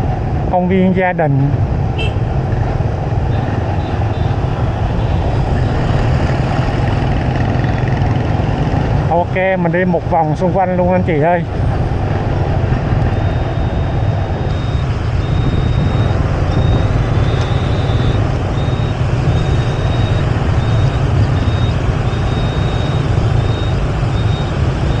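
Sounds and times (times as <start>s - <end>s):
city traffic rumble: 0.0s - 25.0s
high electronic beep: 13.1s - 25.0s.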